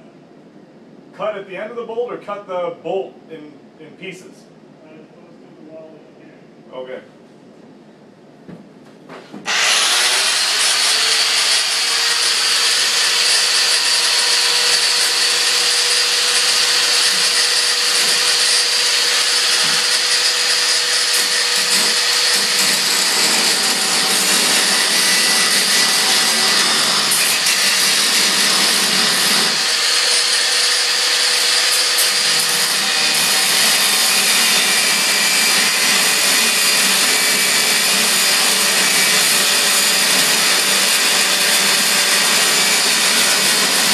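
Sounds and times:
angle grinder cutting metal: 0:09.5 - 0:43.9.

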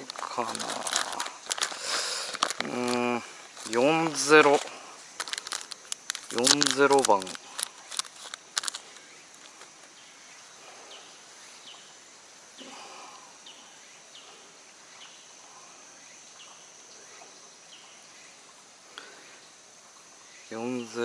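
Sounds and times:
plastic packet crinkling: 0:00.0 - 0:09.8
high insect hum: 0:00.0 - 0:21.0.

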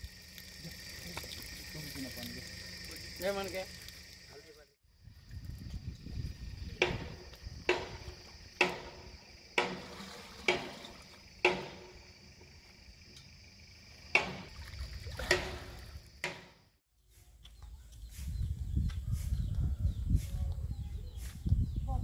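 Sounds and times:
water trickling: 0:00.0 - 0:04.7.

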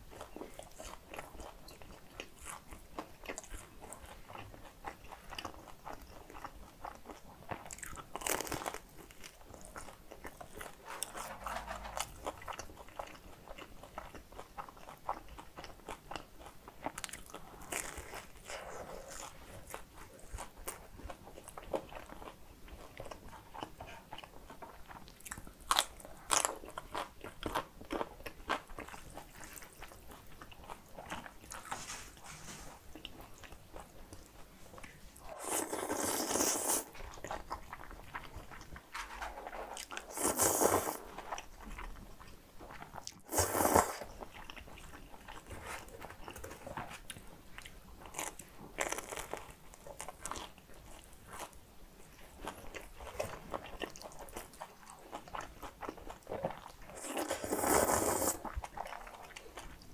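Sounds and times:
slurping noodles: 0:35.2 - 0:36.9, 0:40.0 - 0:41.1, 0:43.2 - 0:44.1, 0:56.9 - 0:58.6.

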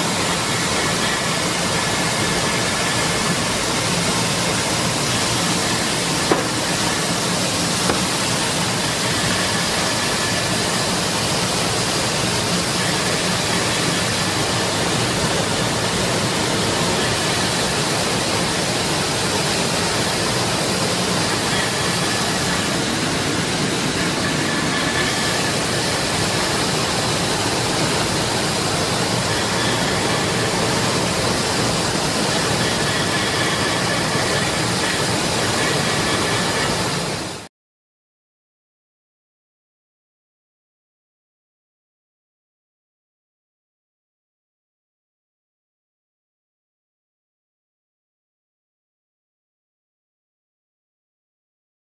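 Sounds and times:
grinding machine rushing: 0:00.0 - 0:37.2.

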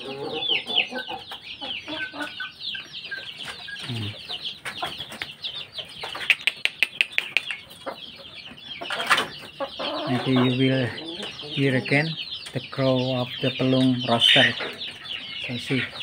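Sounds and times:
chickens clucking: 0:00.0 - 0:16.0
sharp taps: 0:06.2 - 0:07.6.

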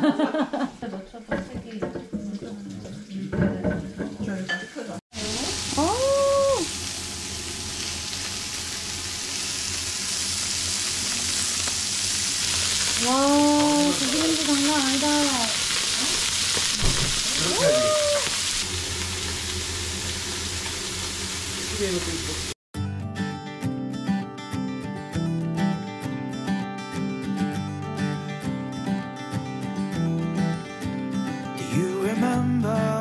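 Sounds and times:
meat sizzling on grill: 0:03.9 - 0:22.6.

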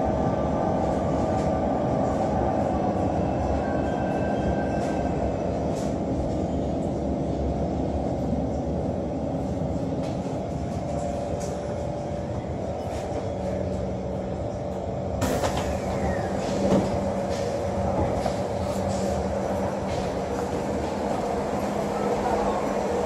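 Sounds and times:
train cabin hum: 0:00.0 - 0:23.0
train doors opening with hiss: 0:15.2 - 0:20.5.

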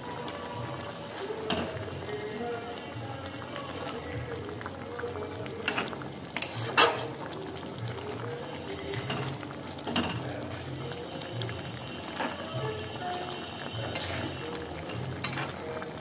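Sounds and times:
curry bubbling in pan: 0:00.0 - 0:16.0
metal spatula clinking on pan: 0:15.2 - 0:15.5.

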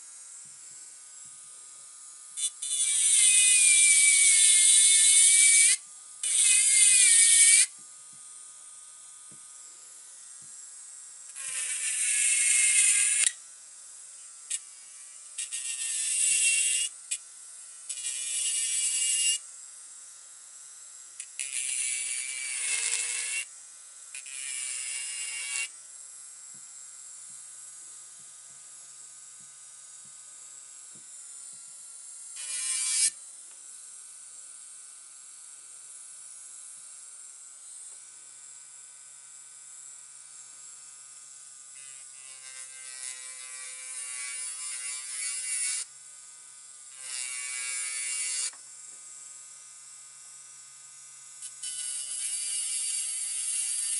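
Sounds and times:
electric nail file whine: 0:00.0 - 0:53.9
bit grinding against nail: 0:02.4 - 0:07.7, 0:32.4 - 0:33.2.

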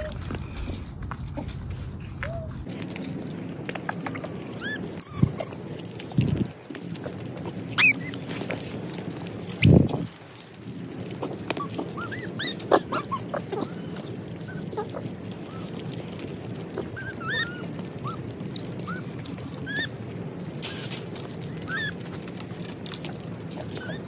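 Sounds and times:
bananas rustling and clicking: 0:00.0 - 0:24.0
monkeys chirping: 0:07.7 - 0:08.2, 0:09.6 - 0:10.1, 0:11.2 - 0:15.8, 0:16.8 - 0:19.9, 0:21.6 - 0:22.0.

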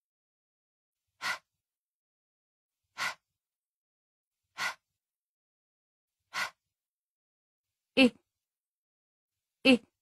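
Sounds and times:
person breathing out h sound: 0:01.2 - 0:01.4, 0:03.0 - 0:03.2, 0:04.6 - 0:04.8, 0:06.3 - 0:06.6.

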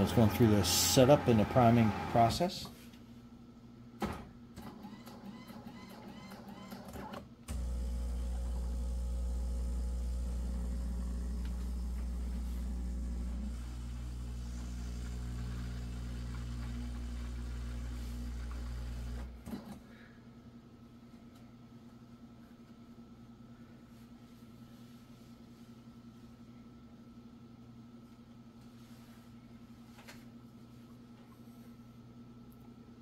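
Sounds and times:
espresso machine pump humming: 0:00.0 - 0:02.4, 0:07.5 - 0:19.3.

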